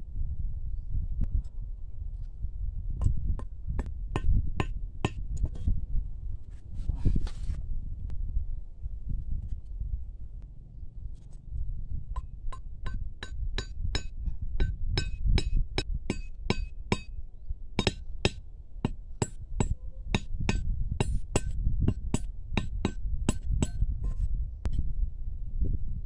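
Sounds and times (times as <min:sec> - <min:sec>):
sharp metallic taps: 0:12.2 - 0:17.1.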